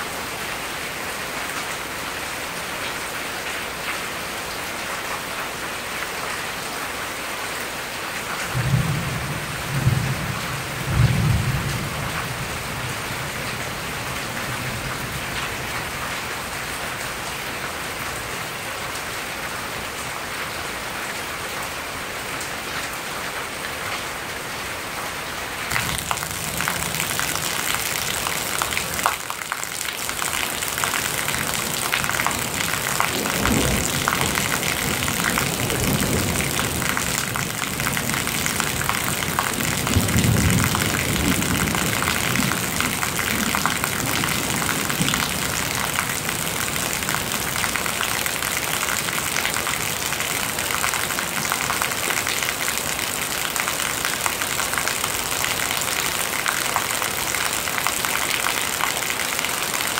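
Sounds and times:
heavy rain: 0.0s - 59.9s
rain splashing on concrete: 0.0s - 59.9s
thunder rumbling: 25.7s - 29.2s, 30.0s - 47.4s.

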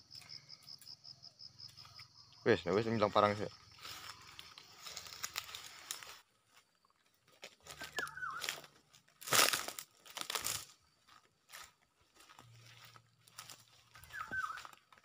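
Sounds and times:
footsteps crunching through dry leaves: 3.2s - 15.0s.

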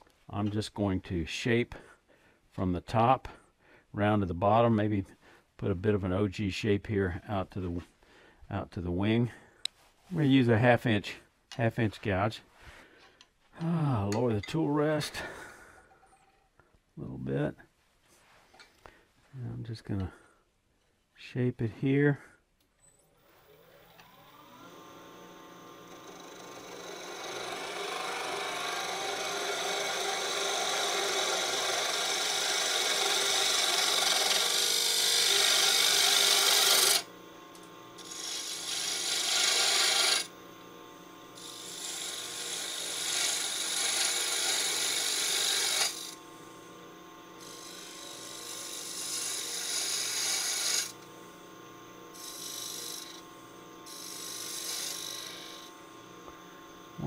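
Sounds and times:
lathe humming: 23.3s - 57.0s
gouge scraping wood: 38.0s - 40.3s, 41.4s - 46.2s, 47.4s - 51.0s.

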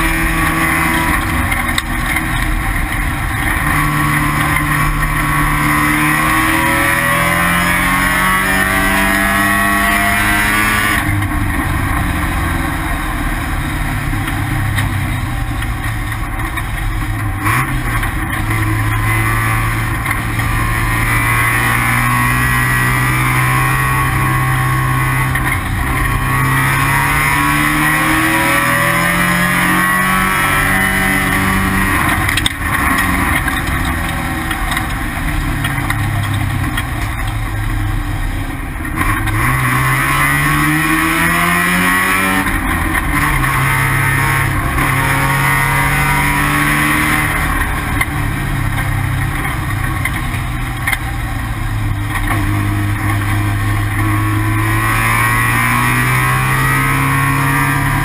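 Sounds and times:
race car engine: 0.0s - 58.0s
wind and road noise: 0.0s - 58.0s.

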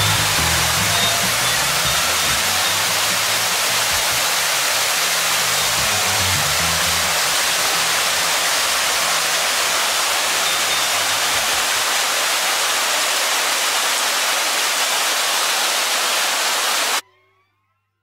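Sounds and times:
small waterfall rushing: 0.0s - 17.0s.

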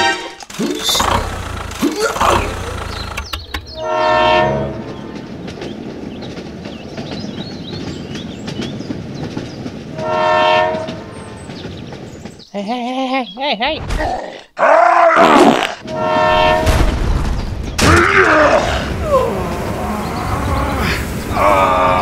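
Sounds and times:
train rattling on track: 0.0s - 12.6s, 15.8s - 17.8s, 18.5s - 22.0s
train horn blast: 3.7s - 5.2s, 10.0s - 11.4s, 15.8s - 16.8s.

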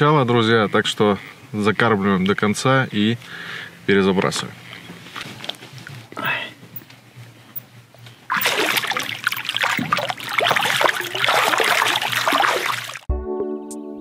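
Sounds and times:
fish splashing in water: 8.3s - 13.1s.

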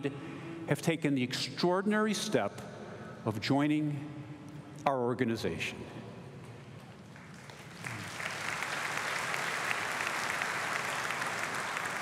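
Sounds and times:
large audience applauding: 7.1s - 12.0s.

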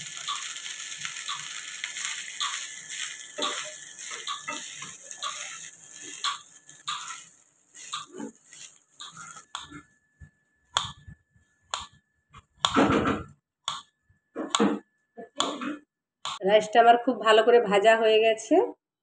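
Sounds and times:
rice sizzling in pan: 0.0s - 9.9s
spatula scraping pan: 1.4s - 9.8s.

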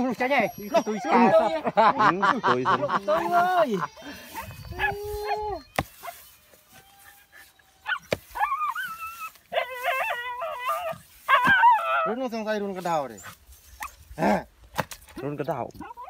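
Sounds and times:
dogs whining and yelping: 0.0s - 1.7s, 3.1s - 14.4s, 15.7s - 16.0s.

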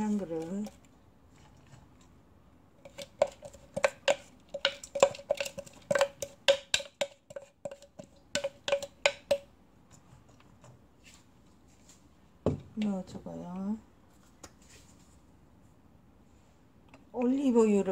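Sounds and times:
wooden spatula knocking on wok: 3.2s - 9.5s.

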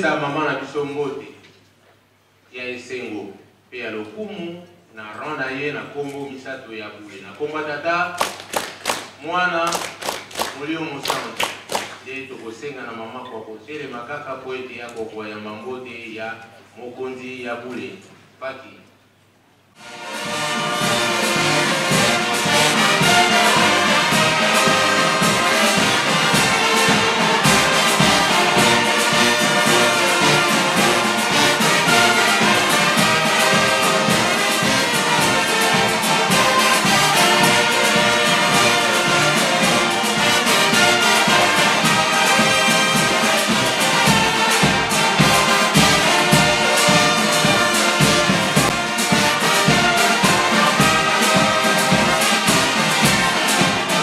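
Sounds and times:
brass band playing: 19.7s - 54.0s
bass drum beat: 20.0s - 54.0s.

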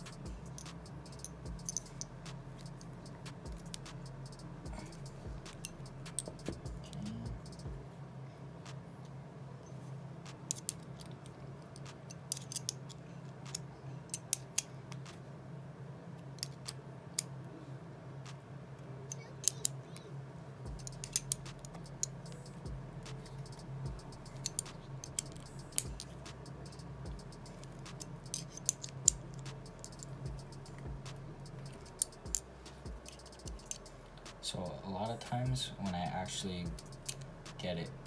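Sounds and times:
small metal clicks and scrapes: 0.0s - 6.6s, 10.5s - 15.2s, 19.1s - 20.1s, 20.7s - 34.3s, 36.0s - 37.8s
steady low hum: 0.0s - 38.0s.

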